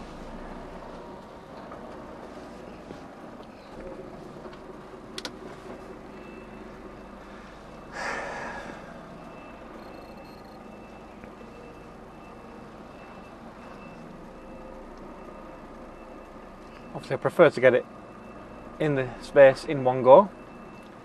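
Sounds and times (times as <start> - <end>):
lorry engine running: 0.0 - 19.5
reversing alarm beeps: 5.7 - 17.1, 17.9 - 21.0.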